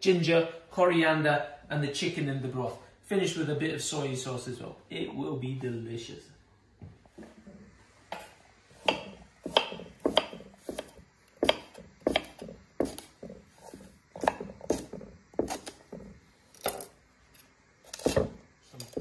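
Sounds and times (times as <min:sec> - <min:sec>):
knife chopping on wooden board: 0:08.1 - 0:16.9, 0:17.9 - 0:19.0.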